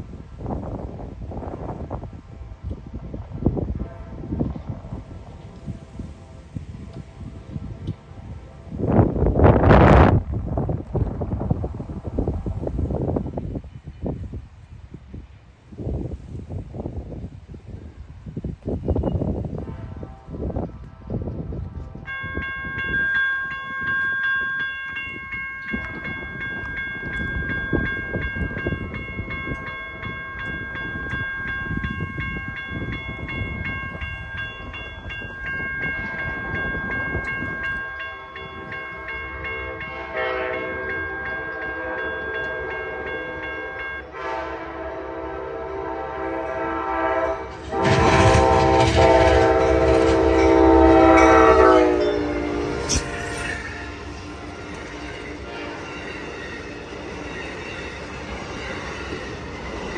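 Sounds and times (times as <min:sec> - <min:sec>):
locomotive engine and rail noise: 0:00.0 - 0:59.9
locomotive horn blasts: 0:03.6 - 0:05.0, 0:05.6 - 0:09.6, 0:19.3 - 0:22.5, 0:39.0 - 0:56.0
crossing warning bell ringing: 0:21.9 - 0:59.9.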